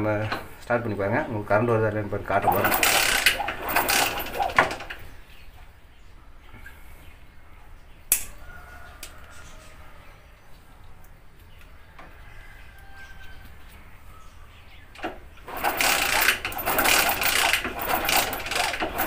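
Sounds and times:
motorcycle engine kick-start clatter: 2.3s - 5.1s, 15.0s - 19.0s
handling noises: 2.4s - 5.1s.

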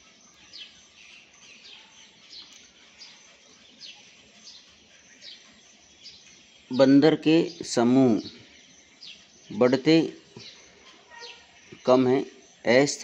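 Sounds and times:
small bird chirping: 0.0s - 13.0s.

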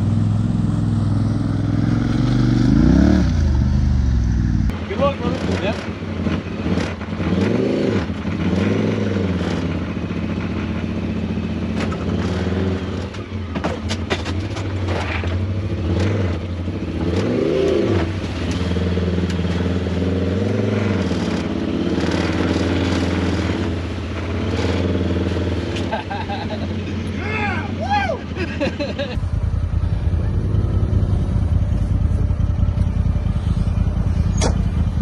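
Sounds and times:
utility vehicle engine revving: 0.0s - 35.0s
knocks and clatter from vehicle: 11.7s - 12.4s, 13.0s - 16.1s.

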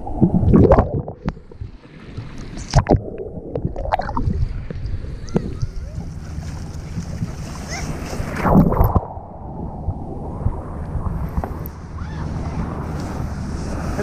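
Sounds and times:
sea water sloshing and splashing: 0.0s - 9.2s
muffled underwater rumble: 0.0s - 14.0s.

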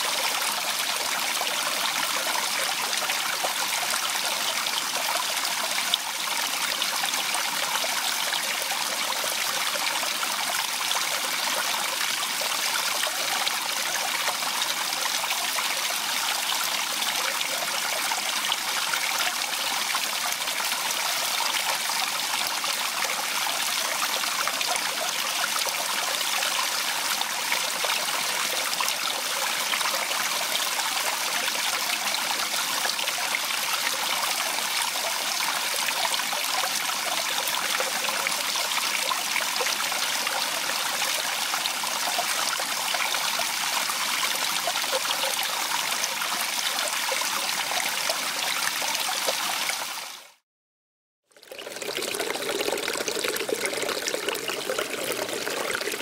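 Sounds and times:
stream splashing over rocks: 0.0s - 50.4s, 51.4s - 56.0s.

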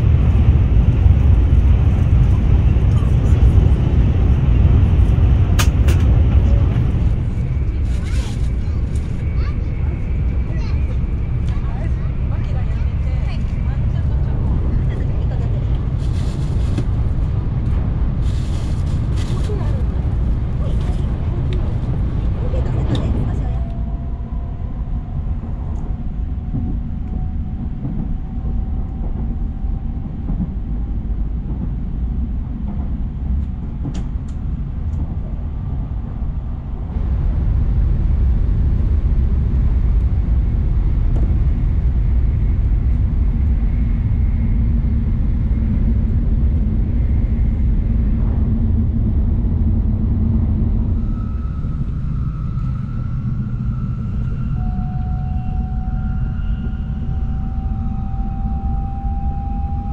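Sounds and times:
train wheels rumbling: 0.0s - 59.9s
faint high whine: 49.9s - 59.9s.

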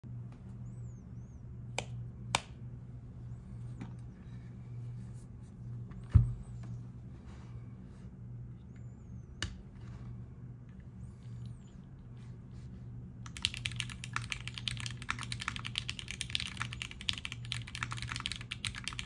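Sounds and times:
low hum: 0.0s - 13.3s
keyboard clicks and knocks: 13.3s - 19.0s.

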